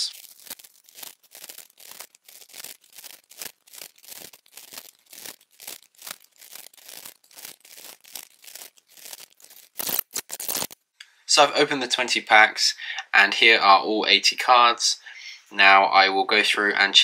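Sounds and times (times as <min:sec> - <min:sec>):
wrappers tearing and crinkling: 0:00.0 - 0:10.8.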